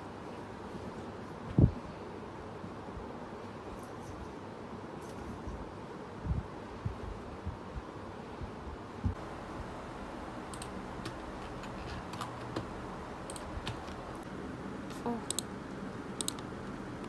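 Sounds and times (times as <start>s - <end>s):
low background hum: 0.0s - 17.0s
keyboard key clicks: 16.2s - 16.5s.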